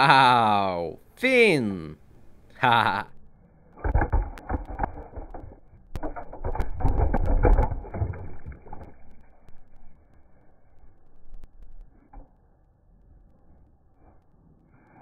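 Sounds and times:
toy cars rolling over rocks: 3.8s - 10.0s.

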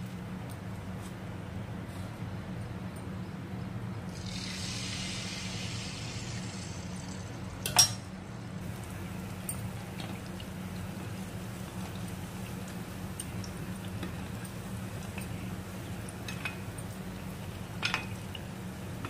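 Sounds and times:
batter sizzling in hot oil: 4.1s - 7.8s, 8.6s - 19.0s.

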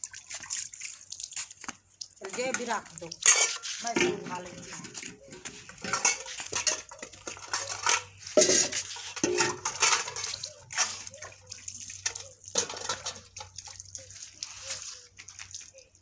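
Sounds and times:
water splashing and dripping: 0.0s - 16.0s
metal pots clanking: 2.3s - 13.9s.

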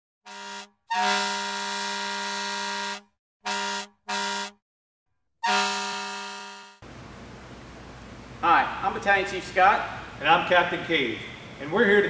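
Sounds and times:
fire truck air horn blasts: 0.2s - 4.6s, 5.4s - 6.8s.

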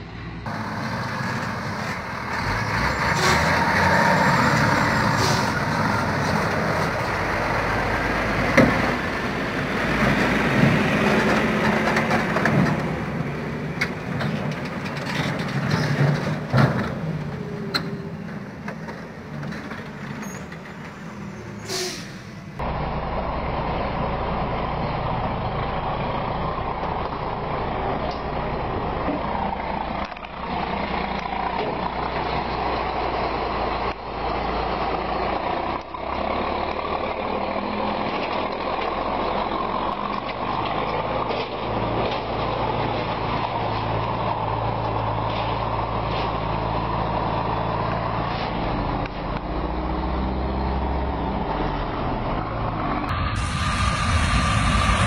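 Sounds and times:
truck diesel engine running: 0.4s - 14.1s, 51.8s - 55.0s
knocks and clatters from truck: 10.1s - 13.0s, 13.8s - 17.1s.

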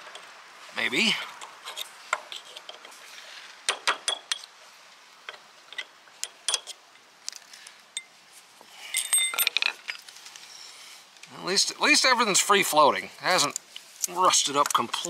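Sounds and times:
metal clicks and taps: 13.5s - 15.0s.

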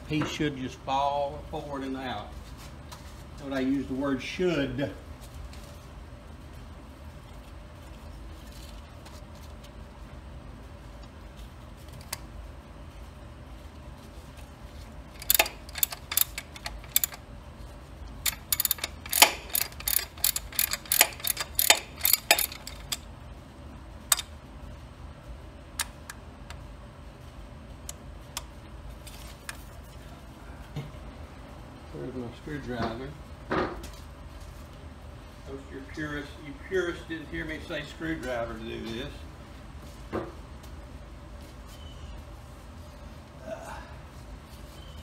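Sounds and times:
ratchet wrench clicking: 15.2s - 17.2s, 18.2s - 23.0s.

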